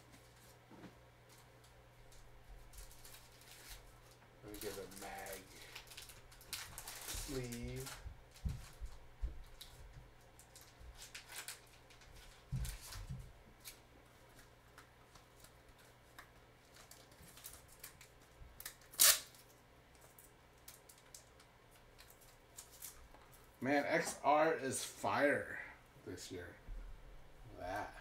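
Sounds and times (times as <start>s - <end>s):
cards and plastic sleeves handled: 2.6s - 9.8s, 10.4s - 23.5s.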